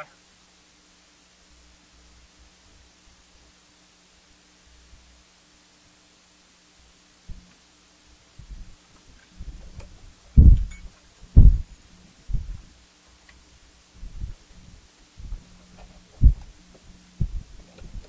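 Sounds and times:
faint steady hum: 0:00.0 - 0:18.0
dull low thumps: 0:09.4 - 0:11.7, 0:12.3 - 0:12.7, 0:14.0 - 0:14.4, 0:15.2 - 0:15.4, 0:16.2 - 0:16.5, 0:17.2 - 0:18.0.

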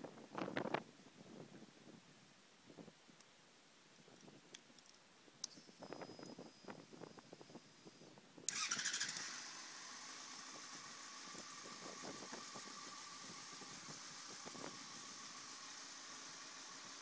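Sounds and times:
motorcycle engine starting and idling: 0:08.5 - 0:17.0.

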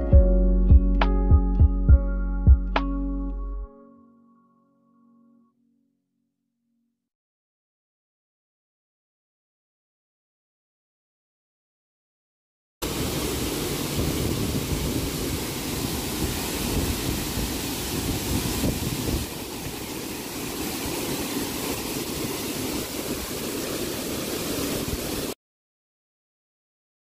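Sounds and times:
waterfall rushing: 0:12.8 - 0:25.4.

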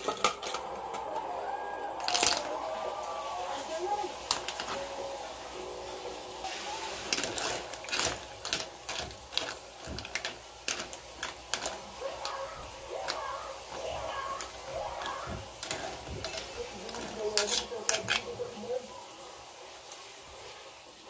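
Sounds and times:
broth boiling: 0:00.0 - 0:21.0
clam shells clacking in pot: 0:02.0 - 0:02.5, 0:07.1 - 0:12.4, 0:14.4 - 0:18.3.

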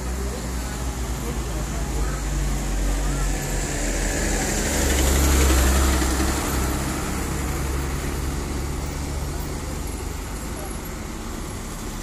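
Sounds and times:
diesel truck engine passing: 0:00.0 - 0:12.0
rumble of trucks: 0:00.0 - 0:12.0
tyre noise on road: 0:00.0 - 0:12.0.

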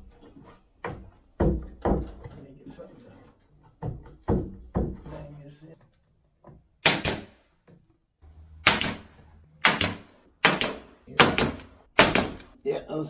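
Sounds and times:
pneumatic nailer firing: 0:06.8 - 0:07.4, 0:08.6 - 0:12.5.

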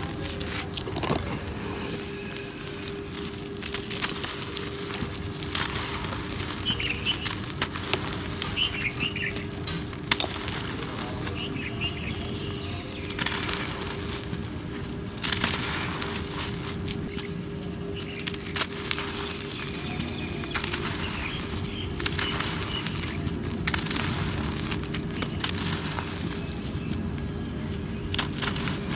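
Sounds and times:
cement clumps crumbling: 0:00.0 - 0:28.9
grit trickling: 0:00.0 - 0:28.9.

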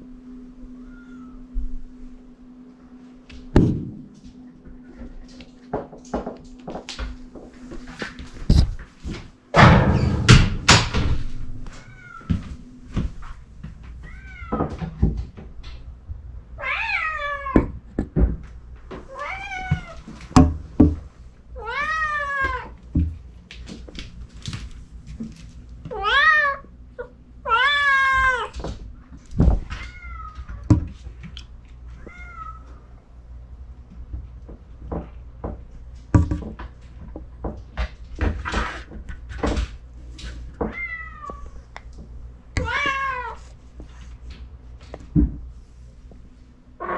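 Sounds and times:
loud knocks and thumps: 0:03.6 - 0:04.1, 0:09.6 - 0:11.6, 0:36.2 - 0:36.6.

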